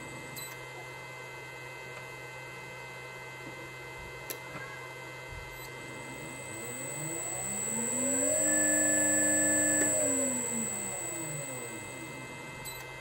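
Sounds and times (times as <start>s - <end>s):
electrical hum: 5.5s - 13.0s
faint high-pitched whines: 5.6s - 12.8s.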